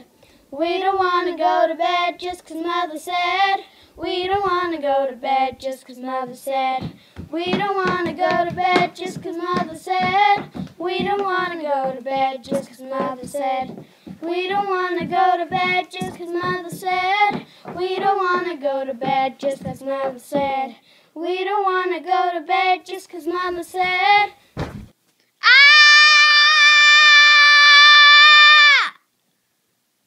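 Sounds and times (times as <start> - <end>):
children singing: 0.7 - 20.7.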